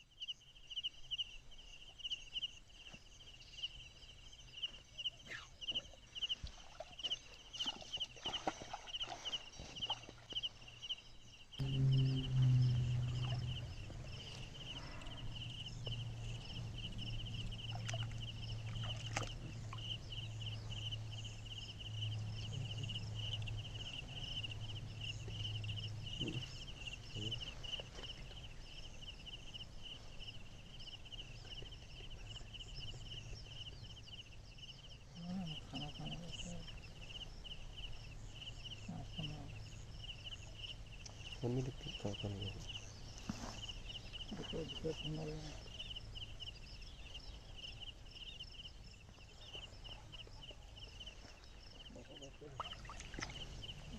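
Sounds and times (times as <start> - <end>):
insects chirring: 0.0 - 53.9
low hum: 11.6 - 27.4.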